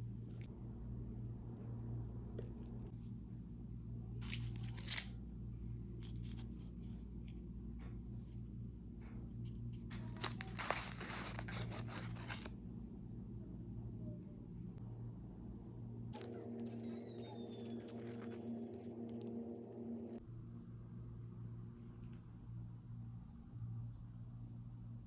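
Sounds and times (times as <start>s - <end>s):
steady low hum: 0.0s - 25.0s
paper liner crinkling: 4.2s - 5.1s, 9.9s - 12.5s, 16.2s - 20.2s.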